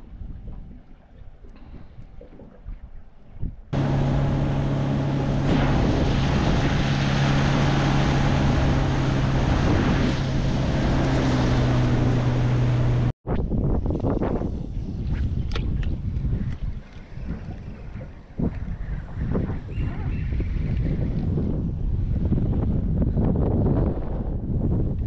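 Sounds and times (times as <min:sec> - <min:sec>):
wind buffeting microphone: 0:00.0 - 0:25.0
outboard motor running: 0:03.8 - 0:13.1
water rushing past hull: 0:03.8 - 0:13.2.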